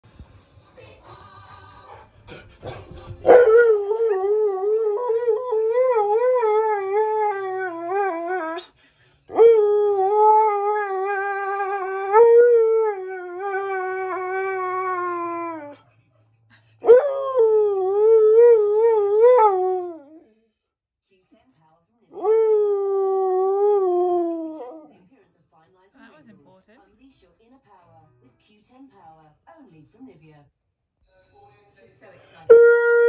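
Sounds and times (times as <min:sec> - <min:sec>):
dog howling: 0:03.3 - 0:08.7, 0:09.3 - 0:15.8, 0:16.9 - 0:20.2, 0:32.5 - 0:33.0.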